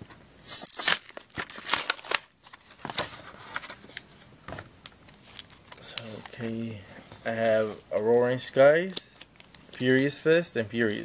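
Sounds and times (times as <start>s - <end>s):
plastic packaging crinkling: 0.4s - 4.1s.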